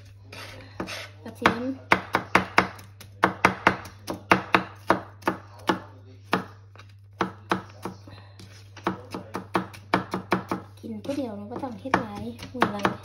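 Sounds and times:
knife chopping on plastic mat: 0.0s - 13.0s.

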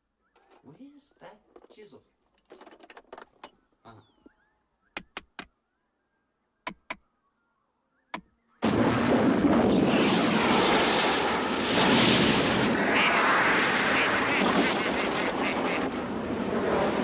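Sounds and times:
chisel taps: 6.7s - 7.0s
loud explosion: 8.6s - 17.0s.

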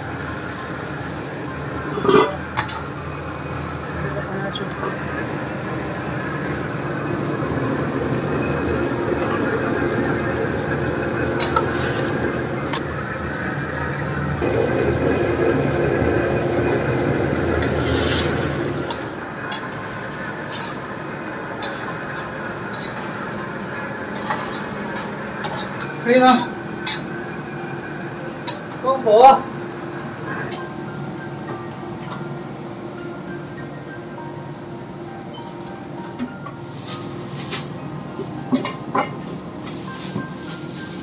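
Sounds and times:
food sizzling in wok: 11.4s - 12.8s, 17.0s - 26.0s, 36.6s - 38.1s, 39.2s - 41.0s
metal spatula scraping wok: 11.4s - 12.8s, 17.6s - 19.8s, 20.5s - 20.9s, 21.6s - 23.2s, 24.1s - 27.1s.

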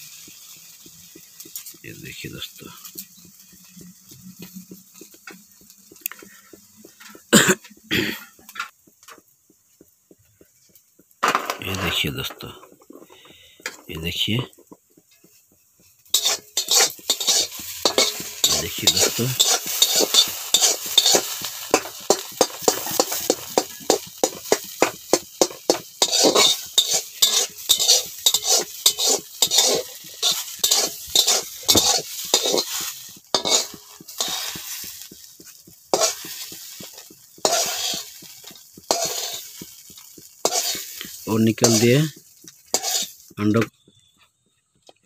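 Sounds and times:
eggs sizzling in oil: 0.0s - 44.8s
metal spatula scraping wok: 15.3s - 43.7s.

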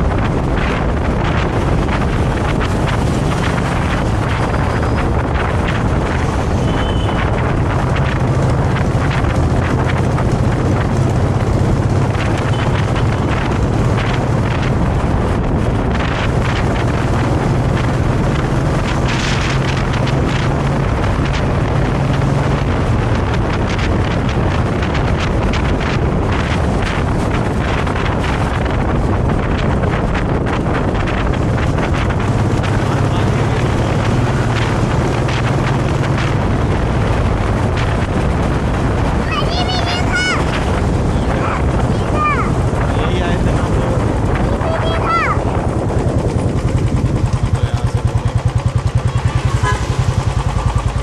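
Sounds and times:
motorcycle engine cruising: 0.0s - 51.0s
wind buffeting microphone: 0.0s - 51.0s.

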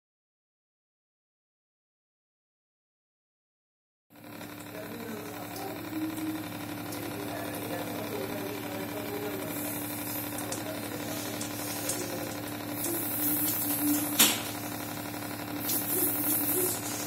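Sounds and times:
pump humming and buzzing: 4.1s - 17.0s.

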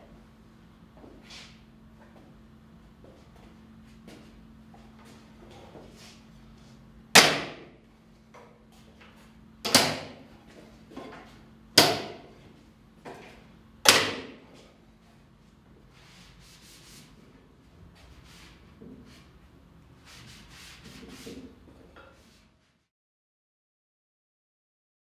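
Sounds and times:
sharp wooden knocks: 7.2s - 7.6s, 11.8s - 12.2s, 13.8s - 14.4s.

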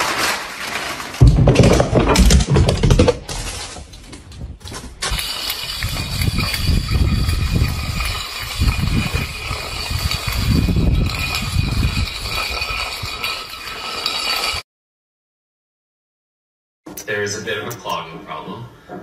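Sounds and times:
metal bowl scraping on concrete: 4.7s - 14.6s.

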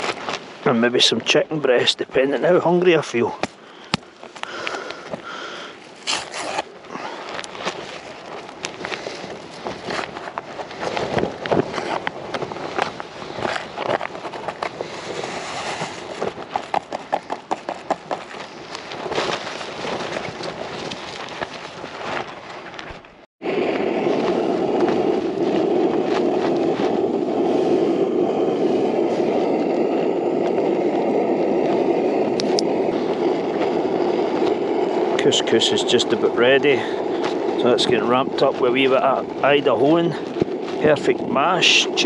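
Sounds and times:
rustling with crackling clicks: 5.9s - 27.2s, 30.3s - 42.0s
gas stove burner hissing: 23.6s - 42.0s.

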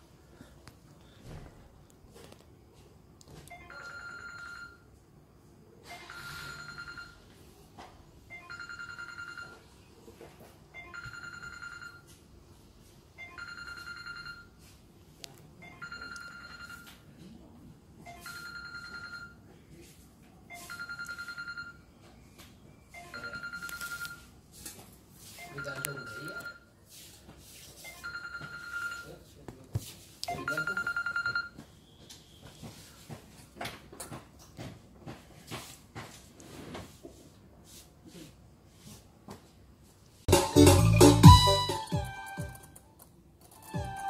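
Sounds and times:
electronic telephone ringing: 3.5s - 4.9s, 5.9s - 7.3s, 8.3s - 9.7s, 10.7s - 12.2s, 13.2s - 14.6s, 15.6s - 17.0s, 18.0s - 19.4s, 20.5s - 21.9s, 23.0s - 24.3s, 25.4s - 26.7s, 27.9s - 29.2s, 30.3s - 31.6s.

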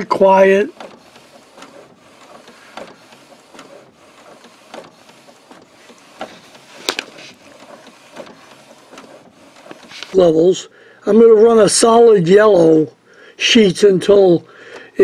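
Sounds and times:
printer clicks: 0.0s - 10.2s
inkjet printer whirring: 0.0s - 10.6s.

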